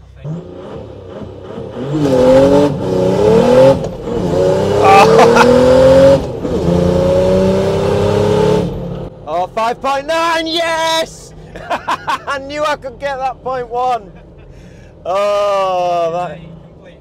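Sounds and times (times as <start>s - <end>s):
diesel engine revving hard: 0.1s - 9.1s.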